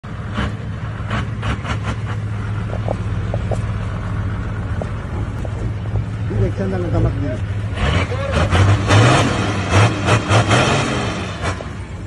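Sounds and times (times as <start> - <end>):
van engine idling: 0.0 - 8.5.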